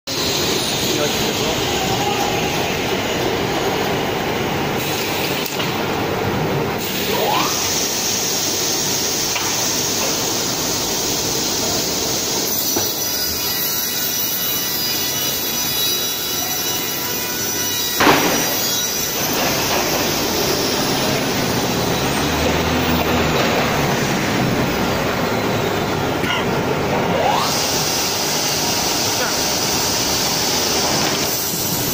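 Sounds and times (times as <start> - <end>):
saw cutting plywood: 6.8 - 25.6, 26.2 - 31.9
high steady tones: 10.3 - 26.2
sharp knock: 18.0 - 18.6.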